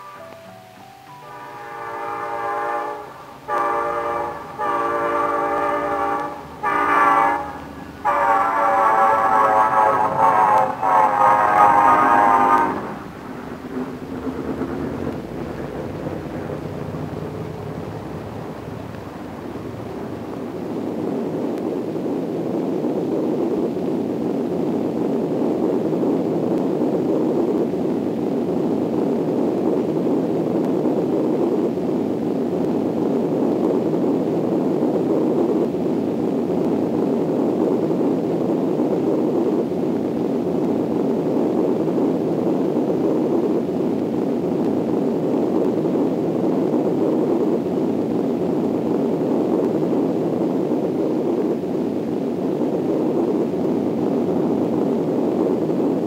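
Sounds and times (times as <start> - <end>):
rushing wind rumble: 0.0 - 56.0.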